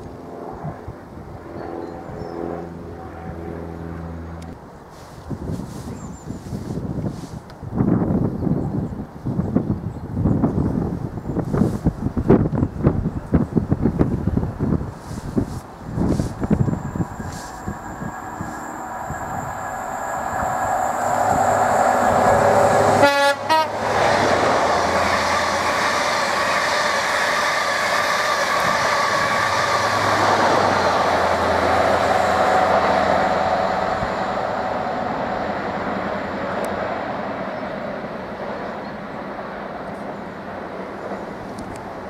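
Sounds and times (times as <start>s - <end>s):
diesel train passing: 2.2s - 7.8s, 13.6s - 42.0s
train wheel and coach noise: 4.4s - 42.0s
train horn: 21.0s - 24.0s.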